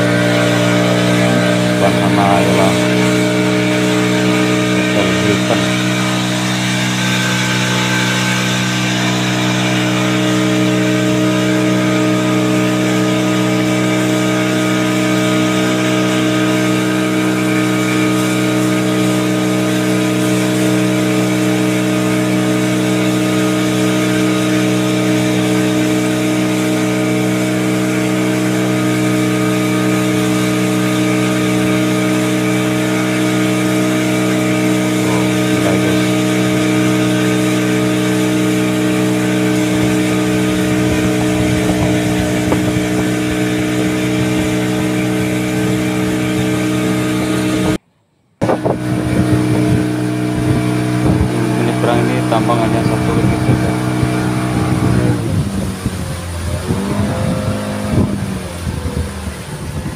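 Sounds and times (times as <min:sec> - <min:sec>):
boat engine droning: 0:00.0 - 0:59.9.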